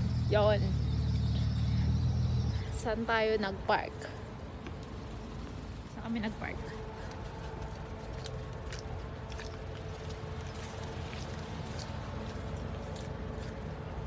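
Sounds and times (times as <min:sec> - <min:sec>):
steady low rumble: 0:00.0 - 0:14.0
footsteps on pavement: 0:04.5 - 0:14.0.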